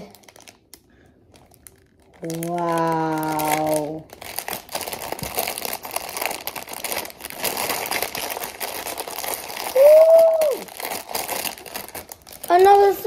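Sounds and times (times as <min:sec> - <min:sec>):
wrapping paper crinkling and tearing: 0:00.0 - 0:13.0
person whooping: 0:09.6 - 0:10.8.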